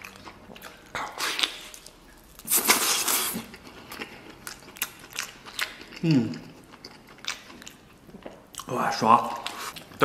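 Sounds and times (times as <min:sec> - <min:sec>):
wet chewing clicks: 0:00.0 - 0:10.0
person slurping: 0:02.4 - 0:04.0.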